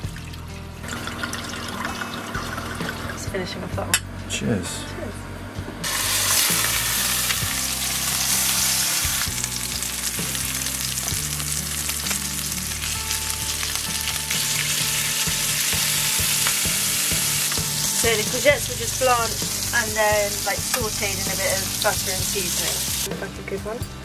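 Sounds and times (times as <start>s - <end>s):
fish sizzling in a pan: 5.8s - 23.1s.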